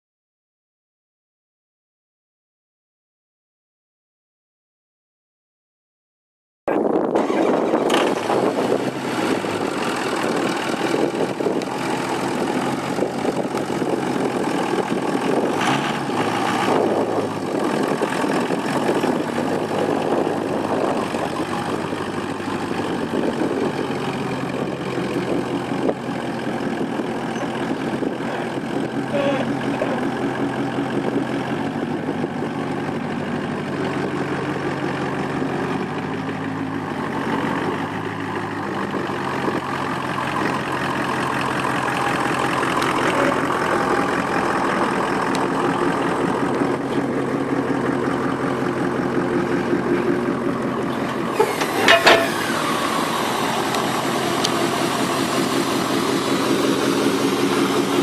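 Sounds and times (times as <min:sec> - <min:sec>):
diesel engine idling: 0:06.7 - 0:58.0
short engine knocks: 0:51.0 - 0:52.7.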